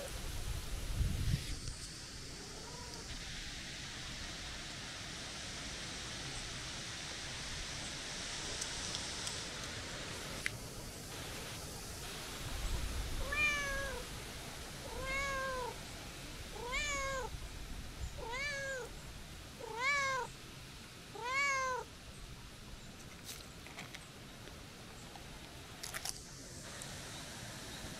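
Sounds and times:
cat meowing: 13.2 - 14.0, 14.9 - 15.8, 16.6 - 17.3, 18.2 - 18.9, 19.6 - 20.3, 21.2 - 21.9.

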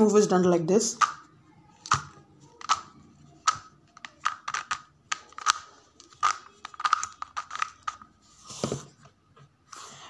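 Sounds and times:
puzzle cube layers clicking: 0.9 - 1.2, 1.8 - 8.0.

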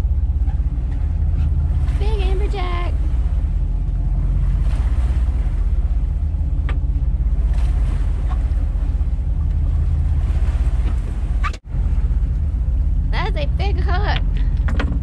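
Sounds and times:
boat engine rumbling: 0.0 - 15.0
wind on microphone: 0.0 - 15.0.

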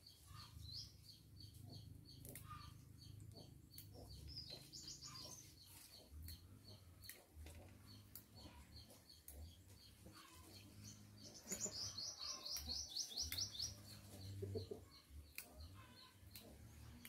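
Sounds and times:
faint chirps: 7.8 - 17.0.

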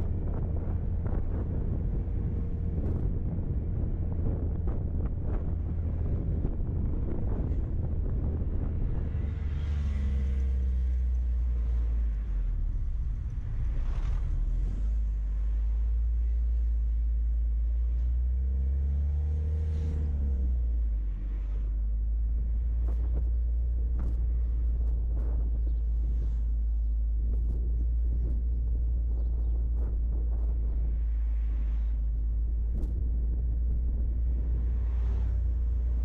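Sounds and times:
vehicle engine and road rumble: 0.0 - 36.0.

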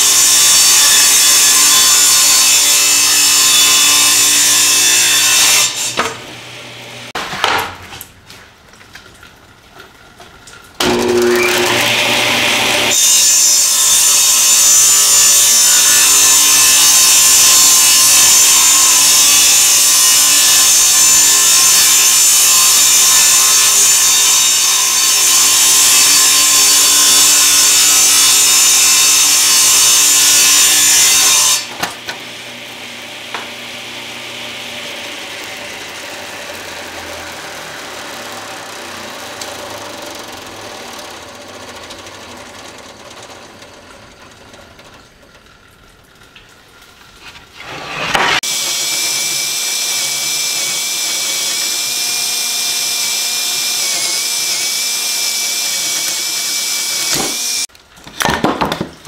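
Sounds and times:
table saw ripping wood: 0.0 - 8.1, 10.8 - 44.9, 47.2 - 59.0.

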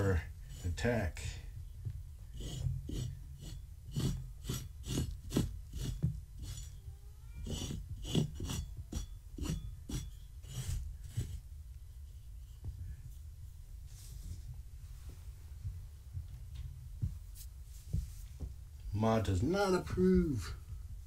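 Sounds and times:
tool scraping across cloth: 0.0 - 1.5, 2.2 - 6.8, 7.4 - 11.5.

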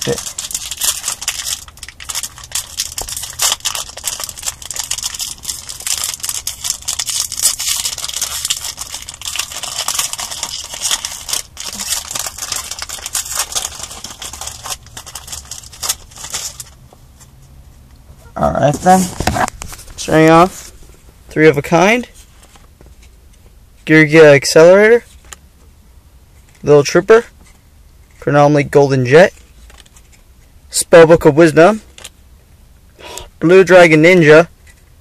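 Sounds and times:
foil wrapper crinkling and tearing: 0.0 - 16.8.

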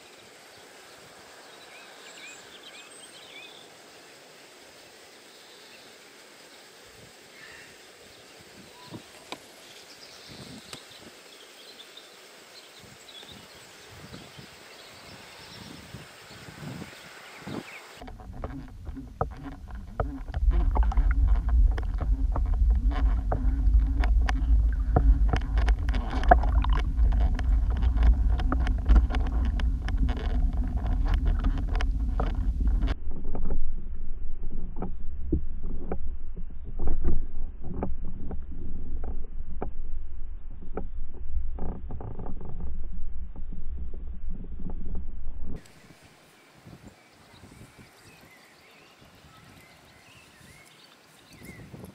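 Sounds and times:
sharp underwater clicks: 18.0 - 33.9
steady underwater rumble: 18.0 - 45.6.

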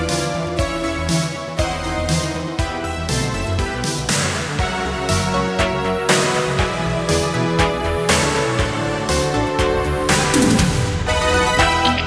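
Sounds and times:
synthwave music: 0.0 - 12.0.

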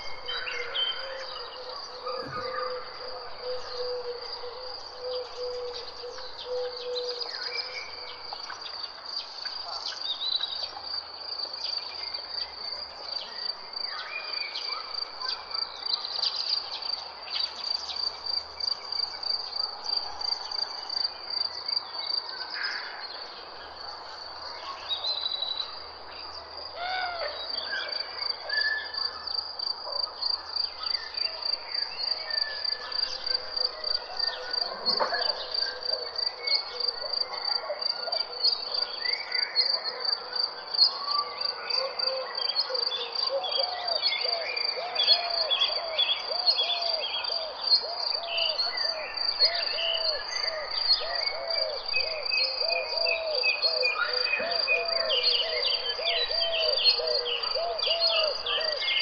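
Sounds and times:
crickets chirping: 0.0 - 59.0.

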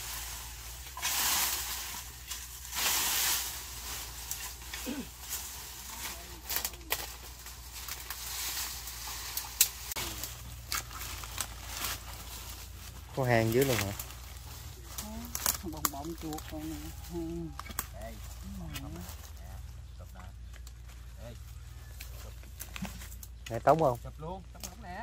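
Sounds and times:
dry leaves crunching and rustling: 0.0 - 25.0.

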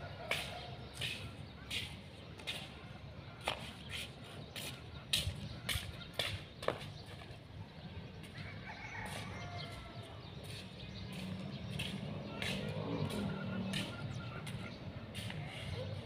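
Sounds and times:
slippers slapping on tiles: 0.2 - 2.8, 3.4 - 7.3, 10.4 - 15.5.

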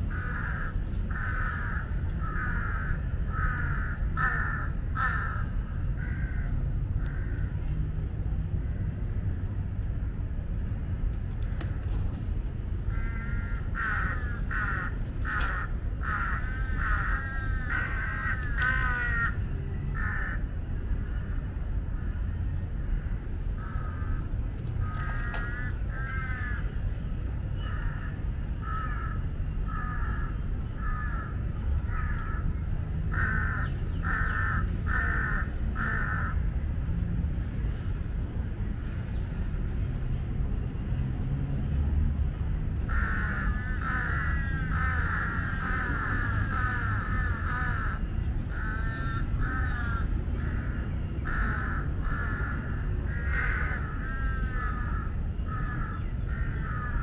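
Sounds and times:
crows cawing: 0.0 - 7.6, 12.9 - 20.5, 22.0 - 26.7, 27.6 - 32.4, 33.1 - 36.4, 42.9 - 57.0
steady low rumble: 0.0 - 57.0.

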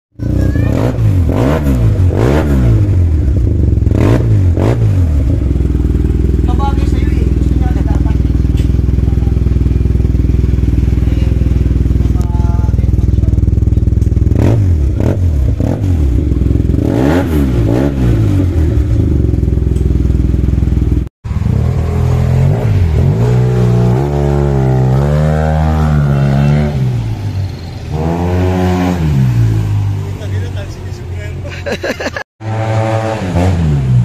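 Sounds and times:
scooter engine revving: 0.2 - 34.0.

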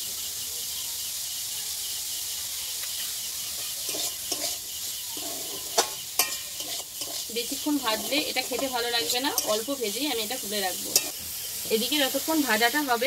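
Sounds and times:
vegetables sizzling in oil: 0.0 - 13.0
metal spatula scraping and stirring: 3.0 - 11.7.

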